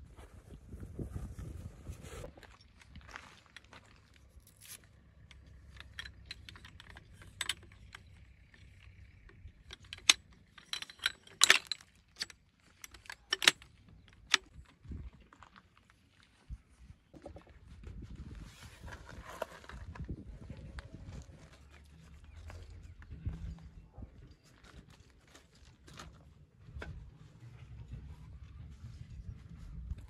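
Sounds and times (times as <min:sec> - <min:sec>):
clicks and clinks of small objects: 0:04.4 - 0:15.6.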